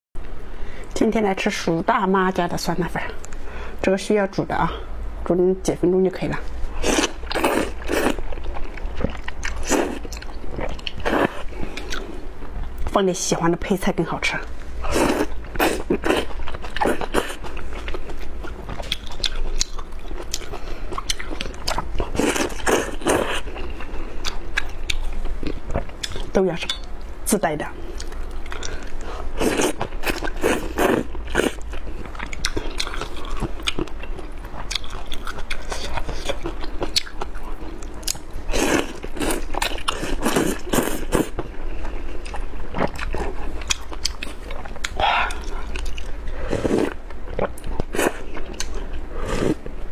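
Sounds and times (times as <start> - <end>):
wet chewing clicks: 28.0 - 38.3
wet chewing clicks and smacks: 31.7 - 38.3, 42.2 - 46.2.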